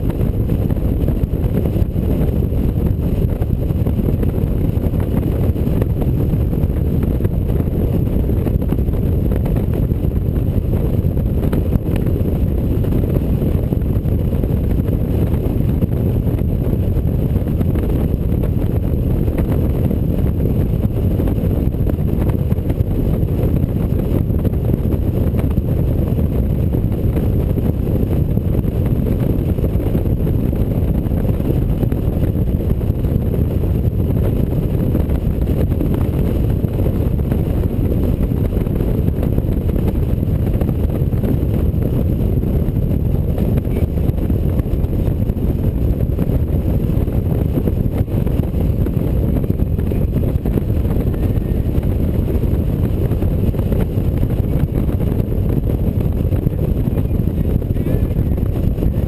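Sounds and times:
motorcycle engine and road noise: 0:00.0 - 0:59.0
wind rush on microphone: 0:00.0 - 0:59.0.

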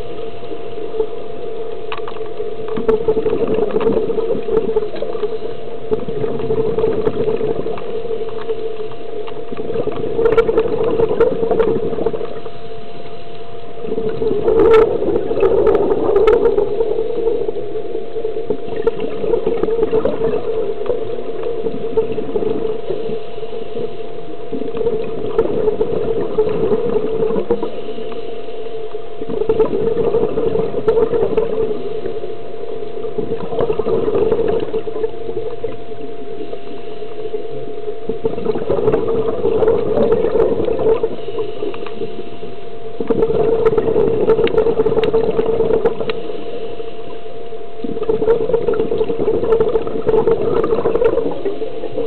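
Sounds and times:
steady hum: 0:00.0 - 0:52.0
bubbling exhalation underwater: 0:02.7 - 0:12.6, 0:13.8 - 0:28.0, 0:29.2 - 0:36.7, 0:37.4 - 0:46.3, 0:47.8 - 0:52.0
diver inhaling through regulator: 0:26.7 - 0:28.9, 0:36.3 - 0:44.3.

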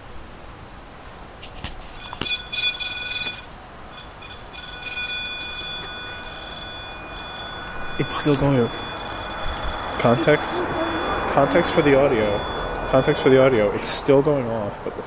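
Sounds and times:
electronic beeping tone: 0:04.0 - 0:13.8.

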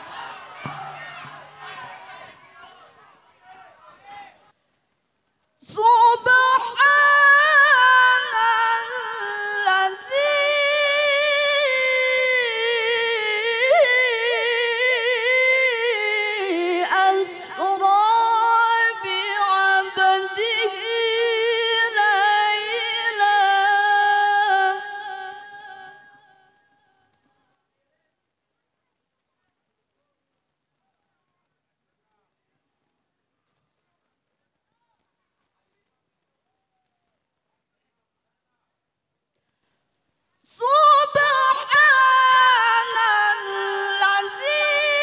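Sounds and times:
woman chanting into a microphone: 0:05.6 - 0:26.5, 0:40.5 - 0:45.0.

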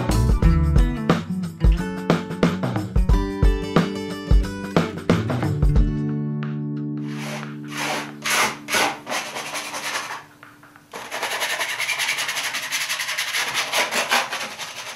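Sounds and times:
brush scrubbing on canvas: 0:07.1 - 0:10.3, 0:11.0 - 0:14.9.

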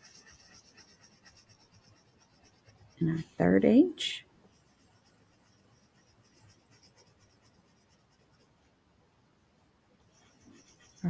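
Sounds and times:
crayon scratching on paper: 0:00.0 - 0:03.5, 0:04.4 - 0:08.6, 0:10.0 - 0:11.0.

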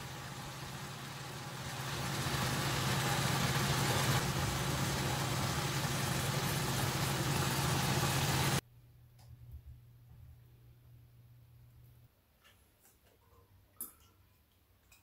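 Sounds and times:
kitchen fan humming: 0:00.0 - 0:08.6.

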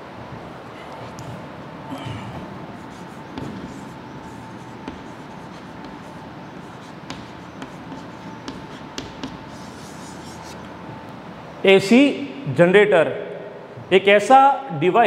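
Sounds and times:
chalk scratching on chalkboard: 0:02.6 - 0:10.8
chalk tapping on chalkboard: 0:02.8 - 0:10.7.

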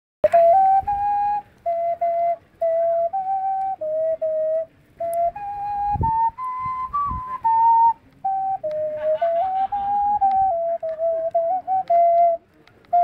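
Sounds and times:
flute playing slow melody: 0:00.2 - 0:13.0.

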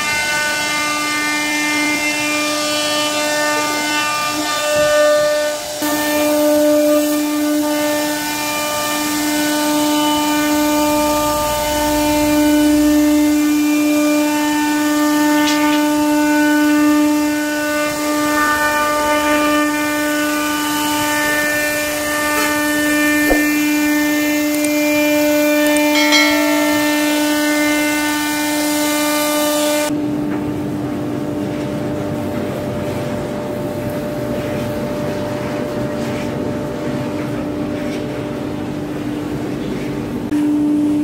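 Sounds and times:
router spindle whining: 0:15.8 - 0:28.3.

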